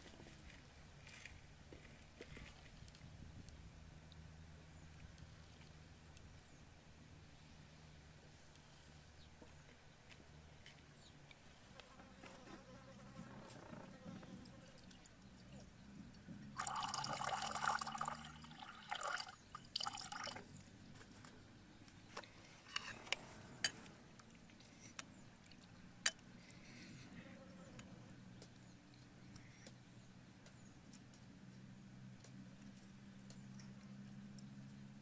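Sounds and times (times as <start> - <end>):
water pouring into ceramic mug: 16.6 - 20.4.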